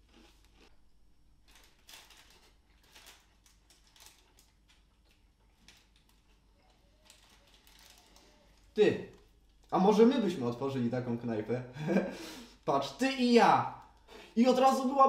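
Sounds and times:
paper wrapper rustling: 1.4 - 9.7.

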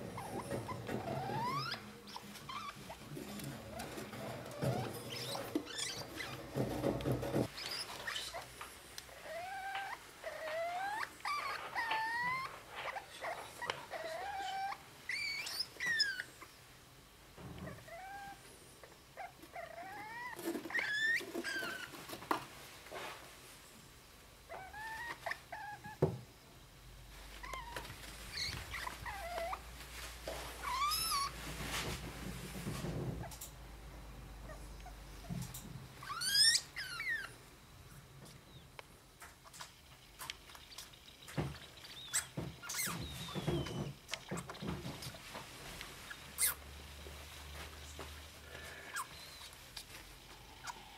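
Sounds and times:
degus squeaking: 0.0 - 8.5, 9.2 - 16.4, 19.2 - 22.2, 27.4 - 29.7, 30.6 - 31.4, 35.2 - 37.4, 39.4 - 45.4, 46.0 - 46.6.

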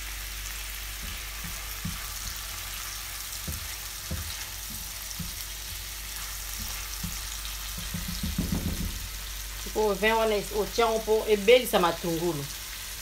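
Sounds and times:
onion sizzling in a frying pan: 0.0 - 13.0
spatula scraping a pan: 1.0 - 8.4.

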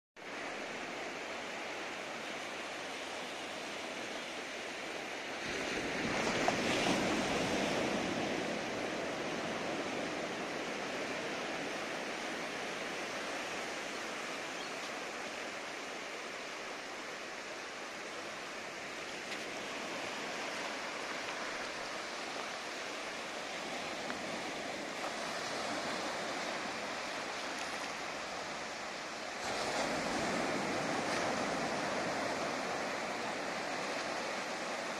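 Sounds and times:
small waves washing on beach: 0.2 - 34.9.

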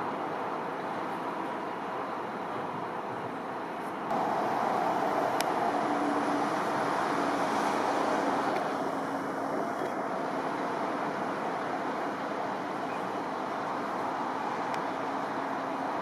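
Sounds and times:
vehicle passing on highway: 4.1 - 16.0.

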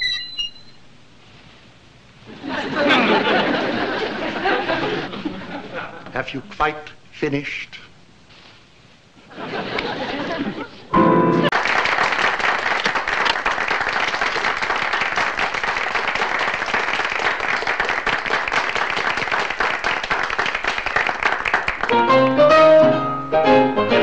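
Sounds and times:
piano playing held notes and chords: 10.9 - 11.5, 21.9 - 24.0
audience applauding: 11.4 - 22.4.

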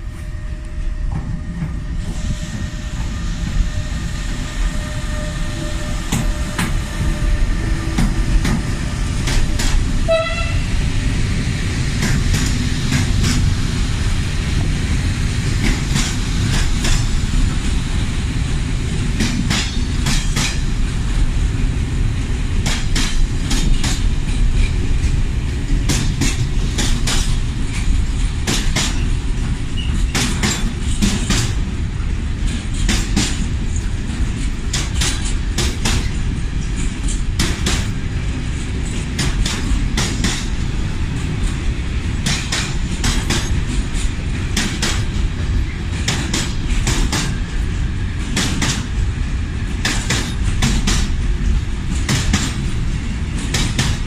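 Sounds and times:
electric locomotive whine: 0.0 - 54.0
train wagons rumbling: 0.0 - 54.0
wheels clacking over rail joints: 6.1 - 10.5, 22.6 - 49.1, 49.7 - 54.0.

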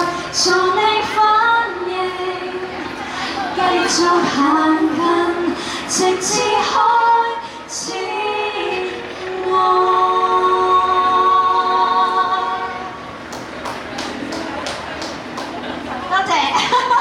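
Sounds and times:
women singing through speakers: 0.0 - 13.2.

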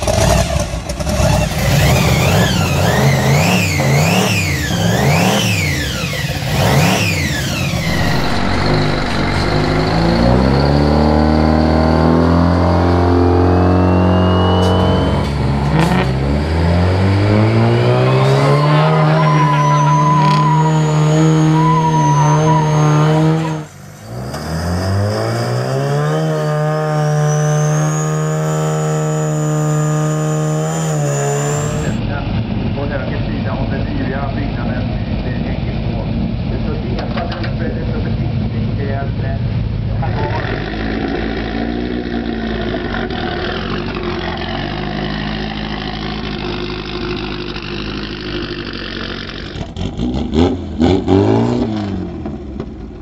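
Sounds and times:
diesel engine revving: 0.0 - 36.8, 37.6 - 53.0
high whine: 5.8 - 25.0, 25.6 - 35.9.

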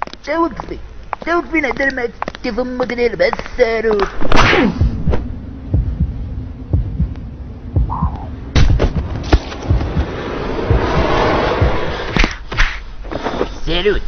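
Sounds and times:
dull punch thuds: 4.2 - 6.1, 7.8 - 10.1
cartoon slap: 4.3 - 5.2.

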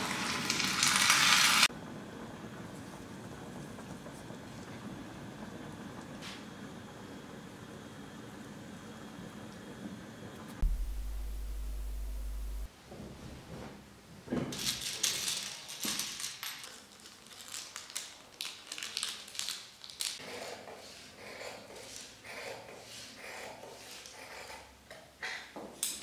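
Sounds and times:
fabric and paper rustling: 14.6 - 20.2.

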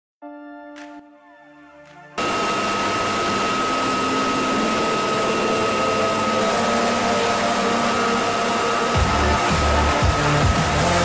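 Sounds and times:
turbine engine whine: 2.2 - 11.0.

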